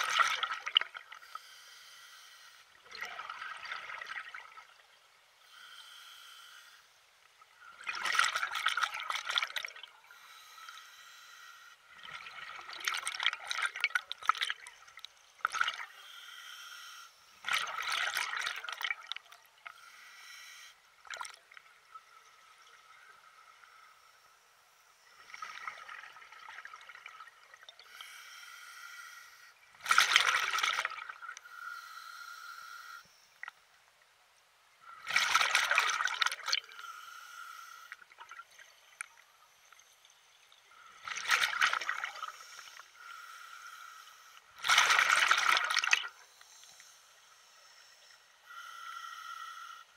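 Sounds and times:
water splashing and trickling: 0.0s - 1.2s, 7.6s - 10.0s, 11.9s - 15.9s, 17.4s - 19.7s, 21.0s - 21.9s, 29.8s - 31.4s, 35.0s - 36.8s, 40.7s - 42.8s, 44.5s - 46.2s.

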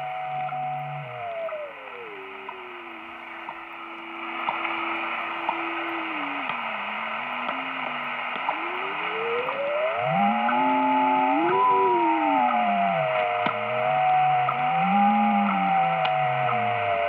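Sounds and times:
faint time signal ticks: 0.0s - 17.0s
radio beat whistle: 0.0s - 17.0s
radio static hiss: 0.0s - 17.0s.

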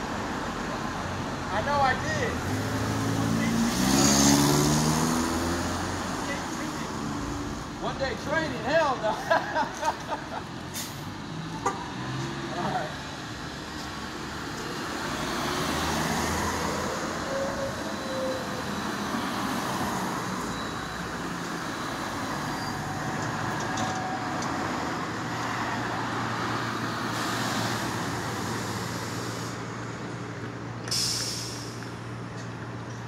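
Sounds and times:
street traffic passing: 0.0s - 33.0s
short hiss: 30.9s - 31.8s.

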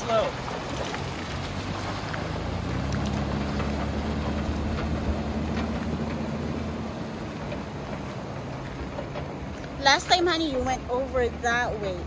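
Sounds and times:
vehicle engine running low: 0.0s - 12.0s
water rushing and splashing: 0.0s - 12.0s.

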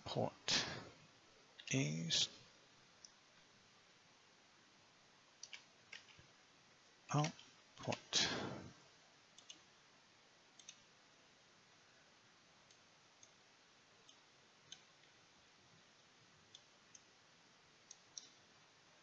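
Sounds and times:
mouse and keyboard clicks: 5.4s - 6.2s, 9.4s - 9.6s, 10.6s - 10.8s.

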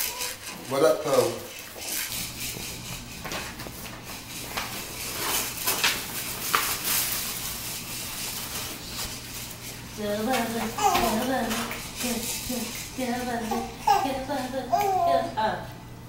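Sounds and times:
plastic bag crinkling: 4.8s - 9.9s.

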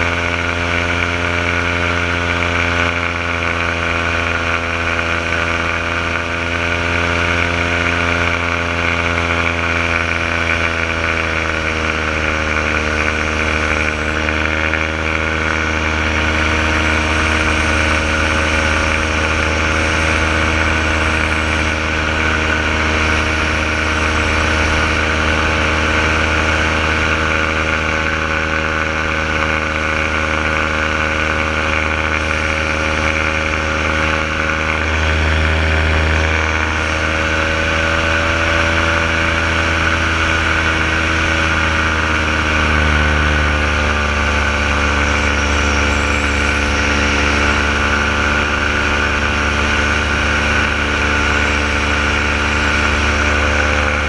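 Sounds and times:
paramotor engine and propeller: 0.0s - 54.0s.

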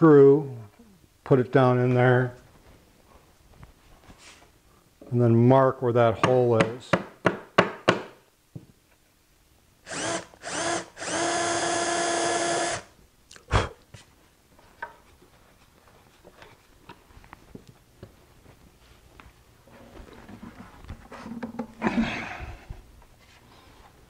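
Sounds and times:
cordless drill boring into wood: 9.9s - 12.9s.

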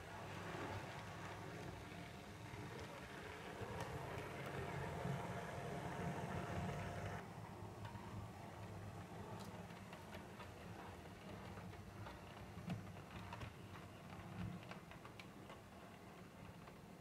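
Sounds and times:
model train wheels clicking: 0.0s - 7.2s.

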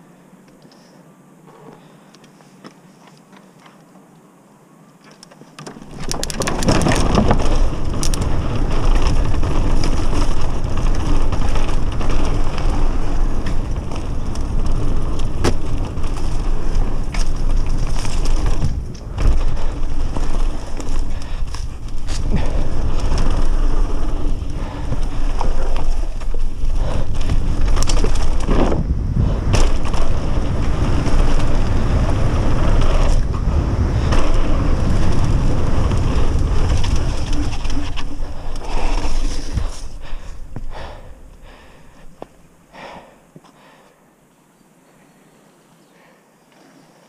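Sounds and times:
tyres on dirt: 5.0s - 44.0s
sharp knocks over bumps: 5.2s - 23.8s, 24.7s - 31.8s
bike frame and chain rattling: 5.6s - 40.9s
wind rumbling on microphone: 5.6s - 43.1s.

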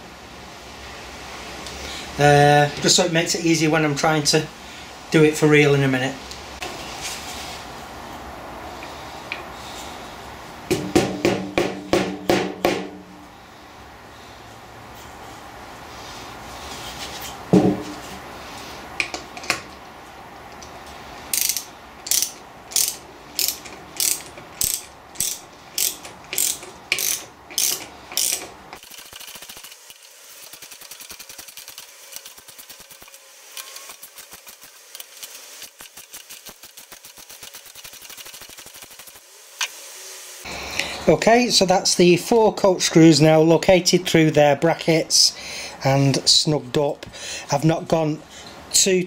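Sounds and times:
knock on wood: 17.5s - 17.9s
socket ratchet clicking: 21.3s - 39.1s.

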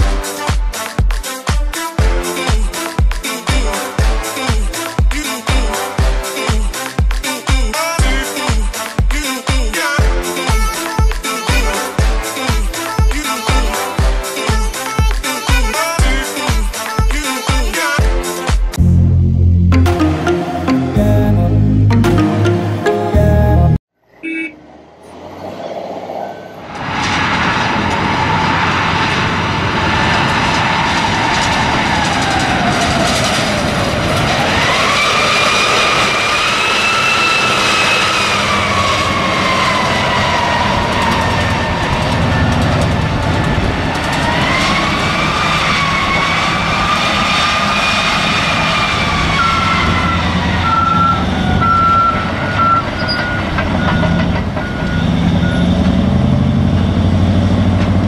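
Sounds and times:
haul truck low rumble: 48.6s - 58.0s
short reversing alarm beeps: 50.6s - 55.9s.

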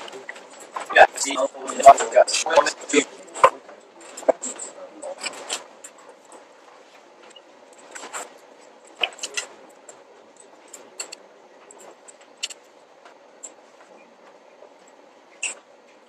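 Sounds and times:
clicks and rustles of paper and pens: 7.2s - 16.0s.

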